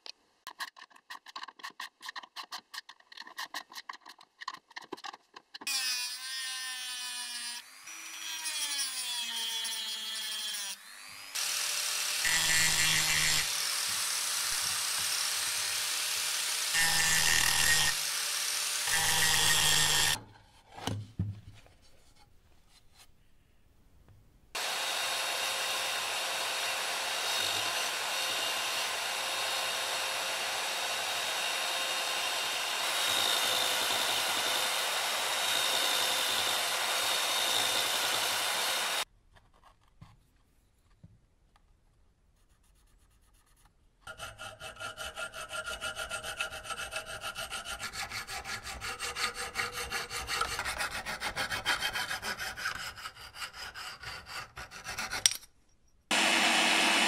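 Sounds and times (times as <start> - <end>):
angle grinder cutting steel: 5.7 - 20.2, 24.6 - 39.1, 56.1 - 57.0
belt sander running: 10.8 - 20.2, 24.6 - 39.0, 56.1 - 57.0.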